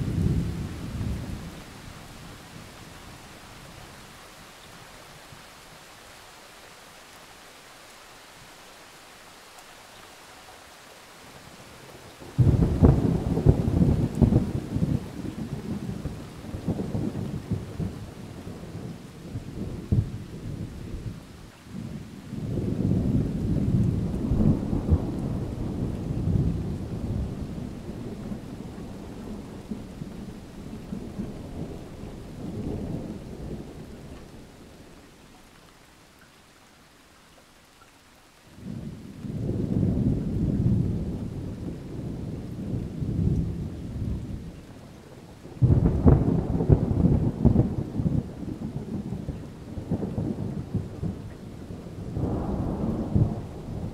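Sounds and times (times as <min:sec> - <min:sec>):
rain hissing: 0:00.0 - 0:53.9
distant thunder rolling: 0:12.3 - 0:34.9, 0:38.6 - 0:53.9.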